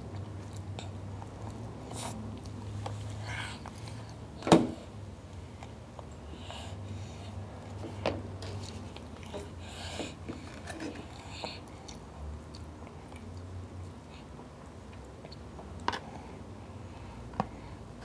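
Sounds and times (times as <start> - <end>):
child chewing: 0.0 - 4.2, 8.4 - 16.3.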